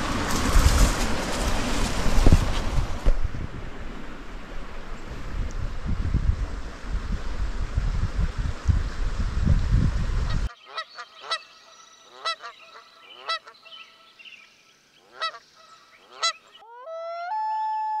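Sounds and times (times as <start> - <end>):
wind buffeting microphone: 0.0 - 10.5
honking bird calls: 10.5 - 14.4, 15.0 - 17.5.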